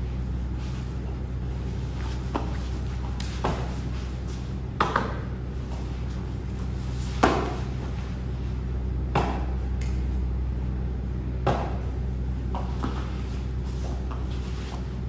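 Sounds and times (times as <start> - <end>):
low hum: 0.0 - 15.0
bodies thumping on foam mats: 1.8 - 8.2, 9.0 - 9.7, 11.4 - 15.0.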